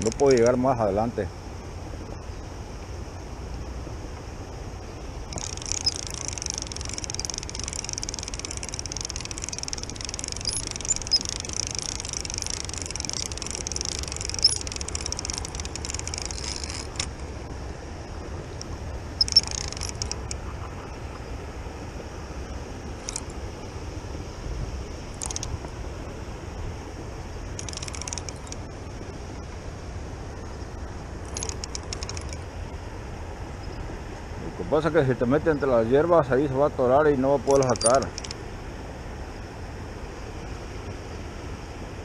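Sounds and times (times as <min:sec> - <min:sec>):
fishing reel whirring: 0:00.0 - 0:00.8, 0:05.3 - 0:17.3, 0:18.6 - 0:20.5, 0:23.0 - 0:23.4, 0:25.1 - 0:25.6, 0:27.5 - 0:28.7, 0:31.2 - 0:32.5, 0:37.4 - 0:38.4
low steady rumble: 0:00.0 - 0:42.0.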